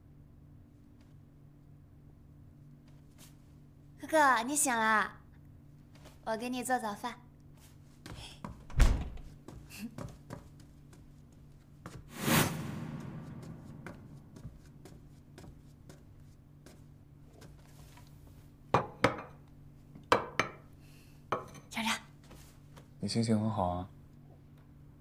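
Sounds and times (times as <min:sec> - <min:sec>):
rushing noise: 0:12.1 - 0:14.8.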